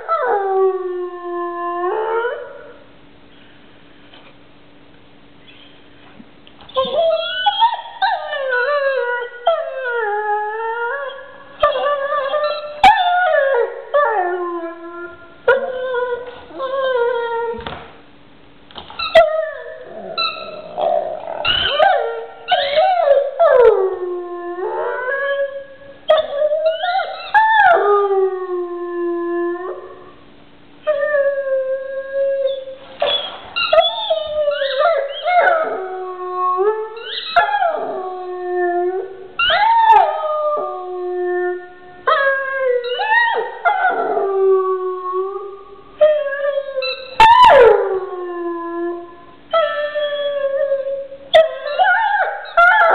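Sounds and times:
dog yipping: 6.6 - 8.4, 19.0 - 23.2, 33.0 - 35.5, 37.0 - 37.6
dog howling: 6.7 - 17.6, 19.0 - 30.1, 30.9 - 52.9.

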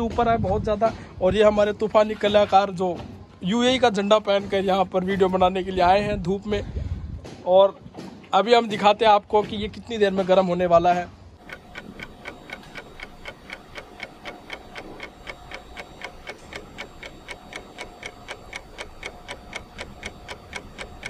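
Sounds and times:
fast clock ticking: 11.4 - 21.0.

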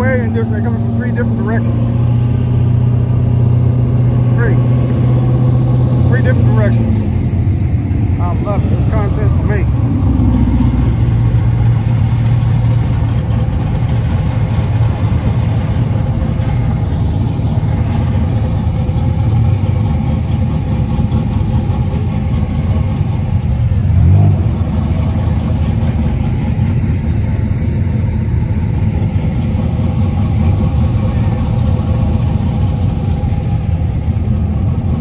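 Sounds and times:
car engines running slowly: 0.0 - 35.0.

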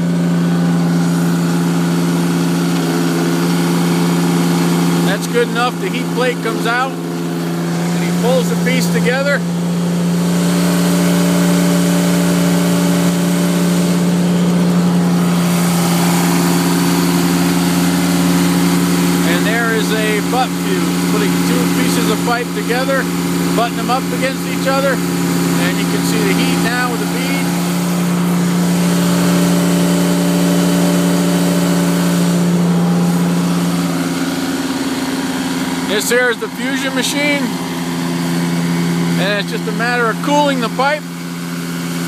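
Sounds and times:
small engine humming: 0.0 - 42.0.

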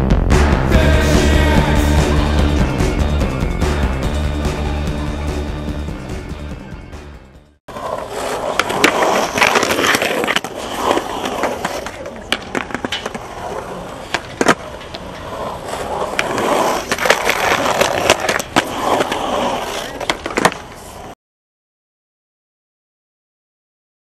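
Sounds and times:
skateboard wheels rolling on concrete: 0.8 - 21.2
skateboard clacking on edge: 7.7 - 21.1.

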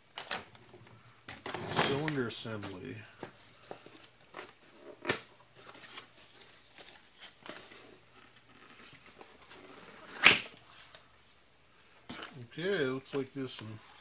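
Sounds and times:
cardboard and paper rustling: 1.4 - 10.2.

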